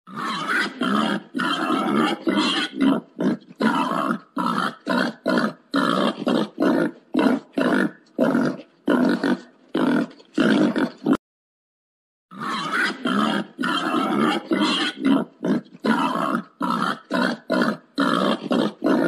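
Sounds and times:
wild boar grunting: 0.1 - 11.2, 12.3 - 19.0.

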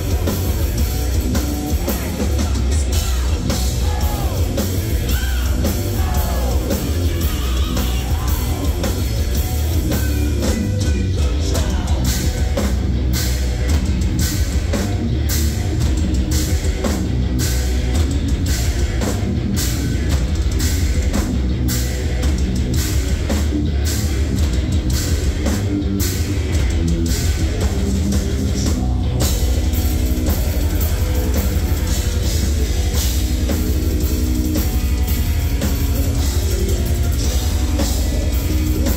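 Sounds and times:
bass: 0.0 - 38.9
distorted electric guitars: 0.0 - 38.9
pounding drum kit: 0.0 - 38.9
singer's vocal: 1.6 - 12.7, 27.3 - 33.0, 36.0 - 38.9.

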